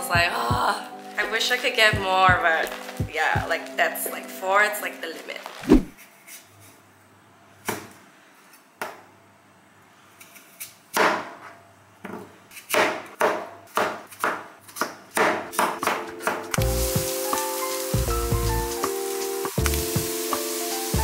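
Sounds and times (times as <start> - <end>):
knife slicing onto cutting board: 5.6 - 6.4.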